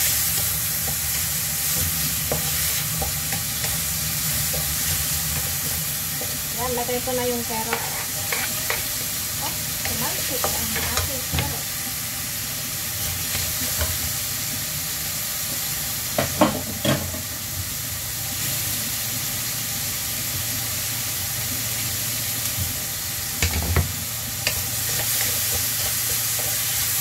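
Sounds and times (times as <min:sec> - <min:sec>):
food sizzling in a wok: 0:00.0 - 0:27.0
wooden spatula scraping a pan: 0:01.7 - 0:09.1.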